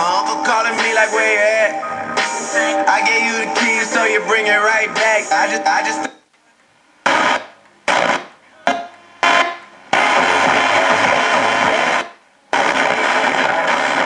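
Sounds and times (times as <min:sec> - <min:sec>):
radio station audio snatches: 0:00.0 - 0:06.1, 0:06.9 - 0:14.0
radio static hiss: 0:02.0 - 0:14.0.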